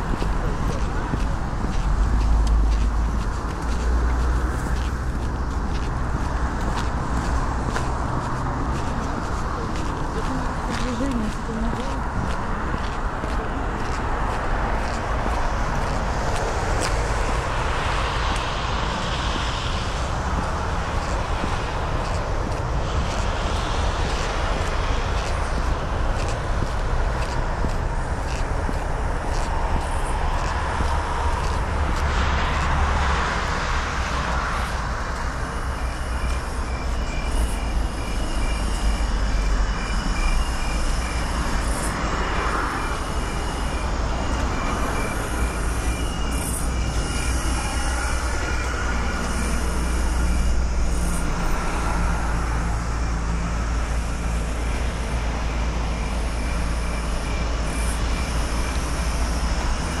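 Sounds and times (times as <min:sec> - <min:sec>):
city traffic rumble: 0:00.0 - 1:00.0
faint high repeating beep: 0:35.7 - 0:50.6.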